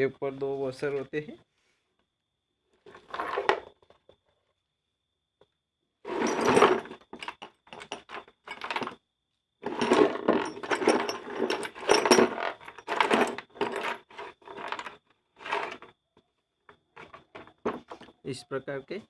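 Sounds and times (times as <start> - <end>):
metal parts clinking and rattling: 6.1 - 9.0, 9.6 - 15.9.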